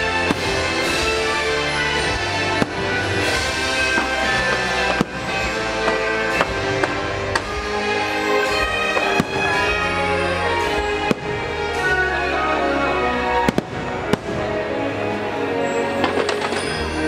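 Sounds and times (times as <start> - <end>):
firework bangs: 0.0 - 7.8, 8.4 - 11.9, 13.3 - 14.8
show music with sustained chords: 0.0 - 17.0.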